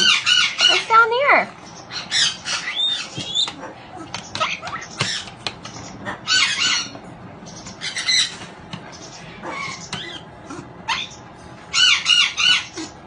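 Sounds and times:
parrot high-pitched calls: 0.0s - 1.2s, 1.8s - 5.3s, 5.9s - 8.5s, 9.1s - 13.0s.

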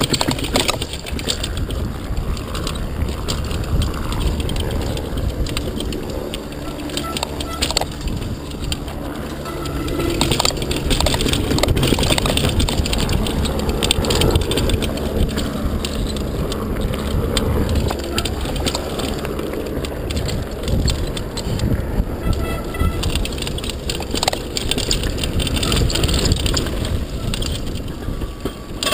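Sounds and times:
bike rattling and clicking: 0.0s - 28.9s
tyres rushing on dirt: 0.0s - 28.9s.

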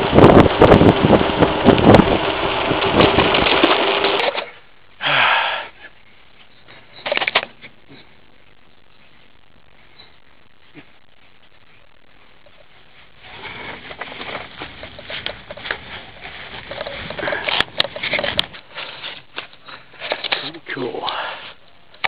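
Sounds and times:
wind buffeting microphone: 0.0s - 3.5s
cluster of clicks: 6.5s - 11.8s, 13.8s - 22.0s.

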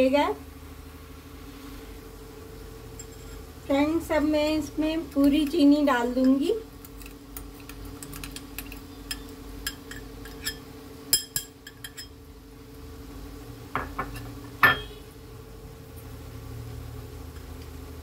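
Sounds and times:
steady low hum: 0.0s - 18.0s
glass bowl clinking on pan: 9.1s - 12.2s, 13.8s - 15.0s.

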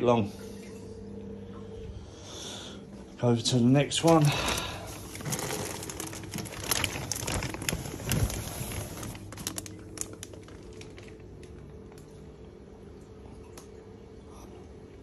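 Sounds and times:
faint steady hum: 0.0s - 15.0s
plastic bags crinkling: 4.0s - 11.6s.

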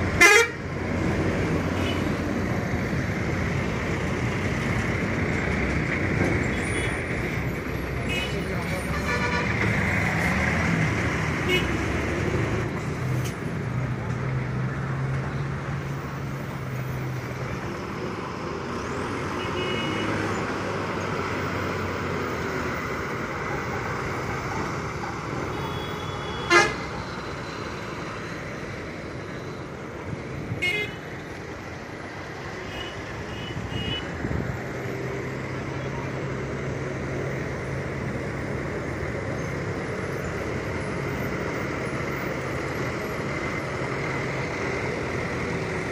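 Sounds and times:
heavy lorry engines running: 0.0s - 45.9s
road traffic noise: 0.0s - 45.9s
truck horn toots: 0.2s - 0.6s, 25.6s - 26.8s.

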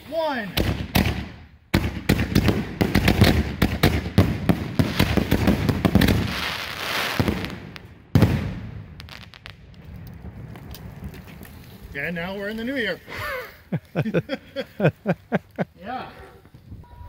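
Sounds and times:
fireworks bangs: 0.5s - 13.0s
small fireworks pops: 0.6s - 12.8s
fireworks hiss: 6.0s - 9.4s.

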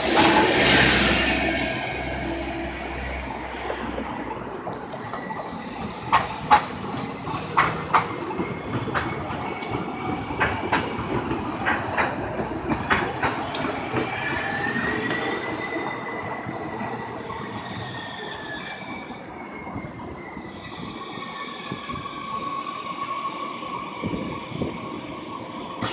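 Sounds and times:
train wheels knocking over track: 4.9s - 17.7s
high wheel squeal: 5.0s - 10.6s, 13.5s - 24.8s.

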